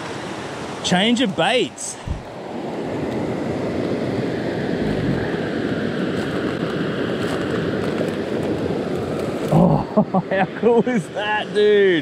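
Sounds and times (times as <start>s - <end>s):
creek rapids rushing: 0.0s - 2.9s, 4.2s - 7.1s.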